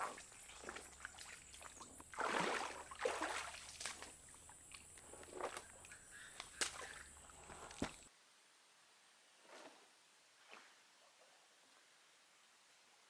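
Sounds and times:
water sloshing and splashing: 0.0s - 8.1s
faint steady hiss: 2.8s - 13.0s.

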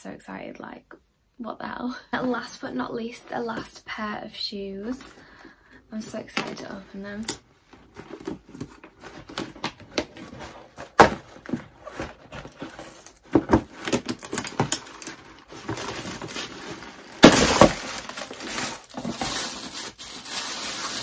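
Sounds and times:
box wrapping crackling and rustling: 6.0s - 21.0s.

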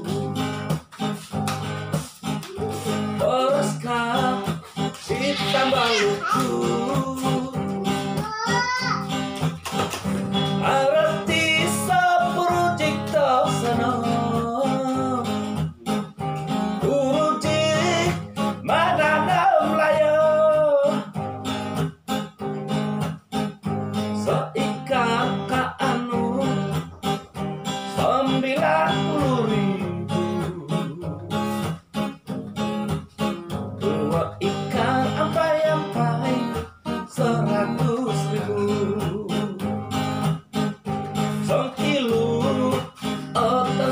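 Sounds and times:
man singing: 0.0s - 0.8s, 2.4s - 8.9s, 10.3s - 21.4s, 23.6s - 31.8s, 33.6s - 40.3s, 41.2s - 43.9s
acoustic guitar strumming: 0.0s - 43.9s.

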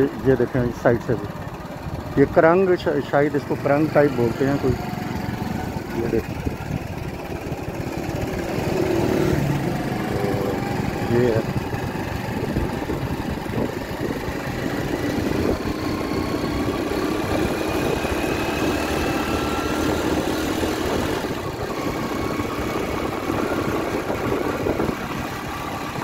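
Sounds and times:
motorcycle engine running: 0.0s - 26.0s
wind rumble on microphone: 5.6s - 26.0s.

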